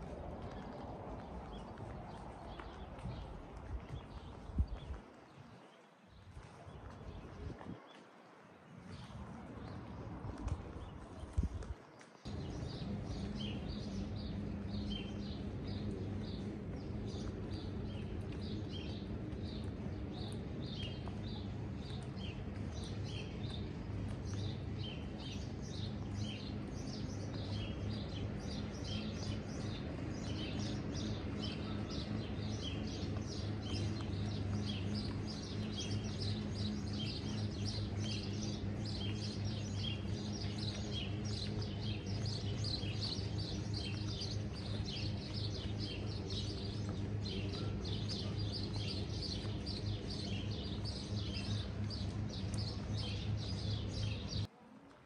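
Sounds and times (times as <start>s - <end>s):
small birds chirping: 0.0s - 54.5s
outdoor background noise: 0.0s - 55.0s
low hum: 12.3s - 55.0s.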